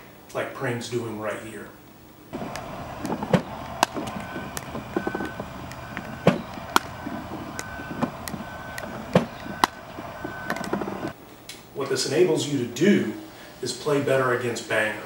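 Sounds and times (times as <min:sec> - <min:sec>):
paddles hitting plastic ball: 0:02.4 - 0:09.8.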